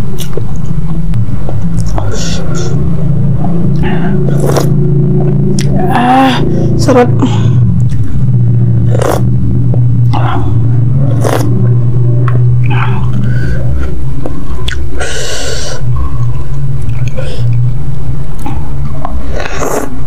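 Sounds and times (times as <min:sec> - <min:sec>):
low hum: 0:00.0 - 0:20.0
wet mouth clicks: 0:00.2 - 0:00.4
close chewing of noodles: 0:03.7 - 0:04.7, 0:11.1 - 0:11.6, 0:19.1 - 0:20.0.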